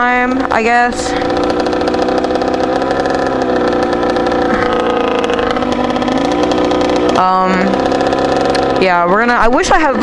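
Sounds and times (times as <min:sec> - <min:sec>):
dirt bike engine idling: 0:00.0 - 0:10.0.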